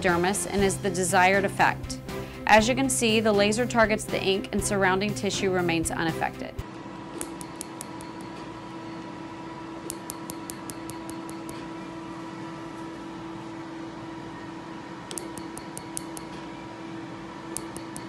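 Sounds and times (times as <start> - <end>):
laser unit hum: 6.6 - 18.0
laser snapping clicks: 7.2 - 8.2, 15.1 - 16.3, 17.5 - 18.0.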